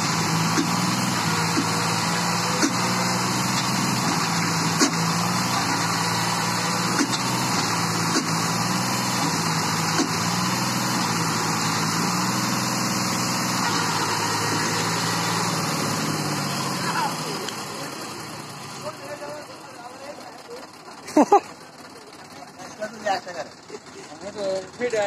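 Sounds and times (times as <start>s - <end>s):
tractor diesel engine running: 0.0s - 25.0s
short sharp clacks: 6.9s - 8.4s.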